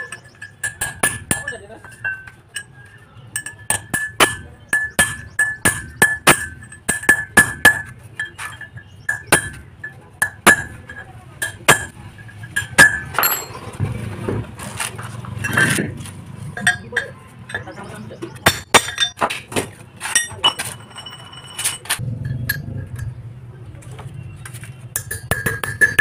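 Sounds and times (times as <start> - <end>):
scraping and handling noise: 12.2 - 17.7, 18.9 - 25.0.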